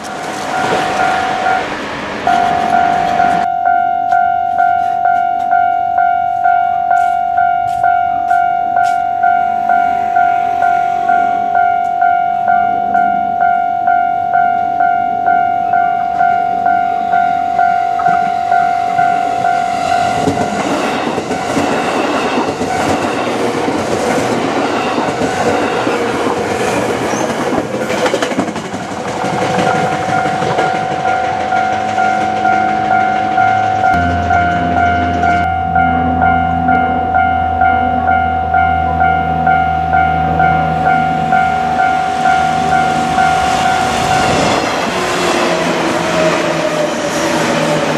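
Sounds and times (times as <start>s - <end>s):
level crossing warning bell ringing: 0.0s - 26.6s, 29.3s - 46.9s
electric train passing: 0.0s - 47.9s
train wheels clattering over rails: 19.3s - 35.5s.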